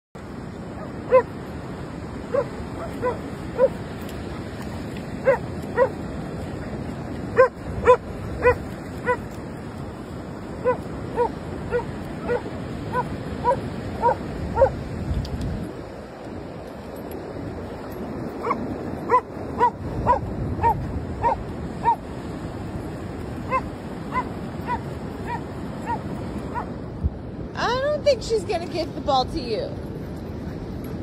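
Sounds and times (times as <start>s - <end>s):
dog barking: 0.8s - 1.3s, 2.3s - 3.8s, 5.2s - 6.0s, 7.4s - 9.2s, 10.6s - 14.8s, 18.4s - 22.0s, 23.5s - 26.7s.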